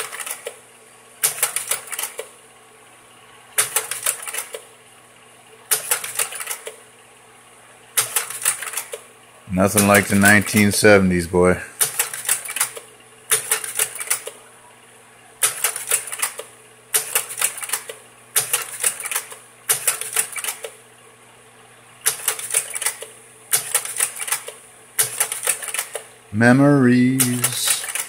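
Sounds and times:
slide projector rapid clicking: 0:00.0 - 0:00.6, 0:01.2 - 0:02.4, 0:03.5 - 0:04.7, 0:05.7 - 0:06.8, 0:07.9 - 0:09.1, 0:09.7 - 0:10.8, 0:11.8 - 0:14.4, 0:15.4 - 0:20.8, 0:22.0 - 0:26.1, 0:27.2 - 0:28.0
projector low hum: 0:00.0 - 0:28.0.

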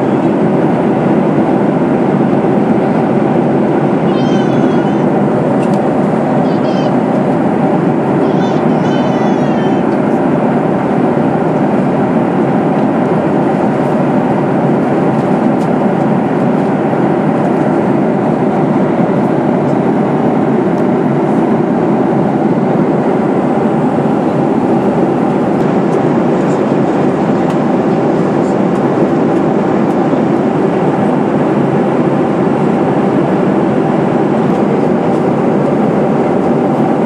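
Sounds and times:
jet engine drone: 0:00.0 - 0:37.0.

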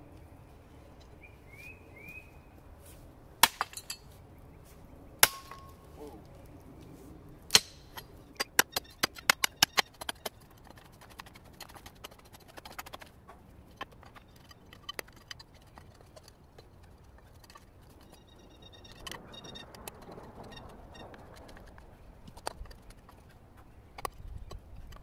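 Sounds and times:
pebbles and dirt scraping: 0:02.8 - 0:25.0
mattock clinking into stony soil: 0:03.4 - 0:04.2, 0:05.2 - 0:06.3.

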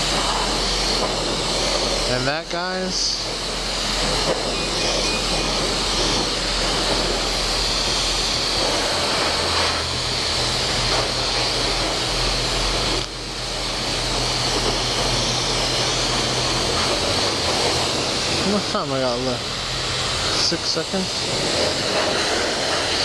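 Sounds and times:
pressure washer spraying water: 0:00.0 - 0:23.0.

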